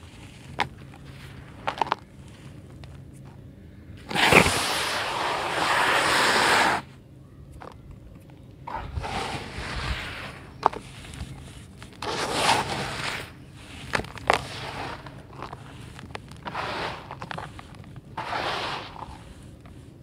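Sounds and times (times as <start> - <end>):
dirt pouring onto pile: 12.0 - 17.6.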